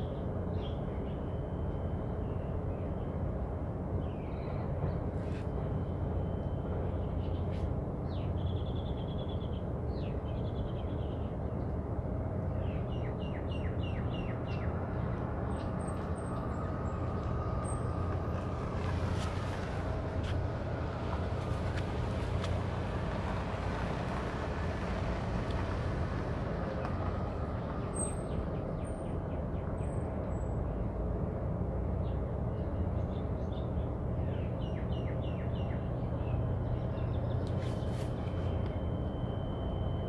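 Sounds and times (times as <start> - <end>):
low outdoor rumble: 0.0 - 40.0
car driving past: 15.5 - 28.4.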